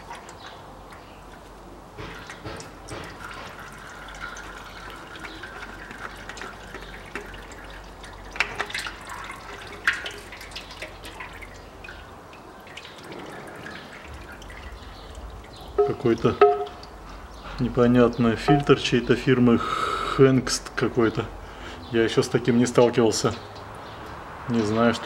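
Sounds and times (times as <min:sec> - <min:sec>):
oil trickling into metal basin: 0:00.0 - 0:19.6.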